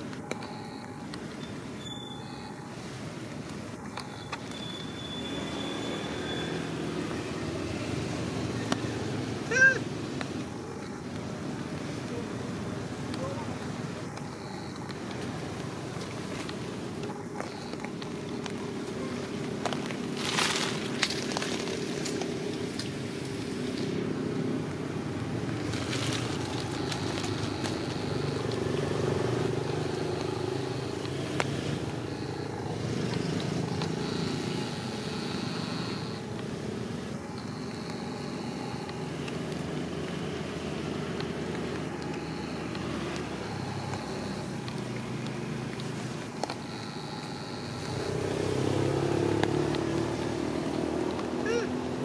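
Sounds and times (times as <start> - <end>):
low engine hum: 0.0 - 52.0
sharp clicks: 26.3 - 50.3.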